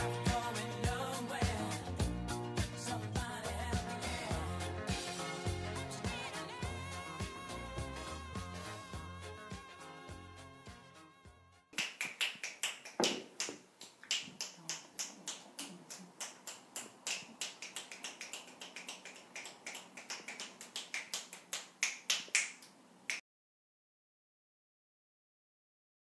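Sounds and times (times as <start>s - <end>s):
finger snapping: 11.8s - 23.2s.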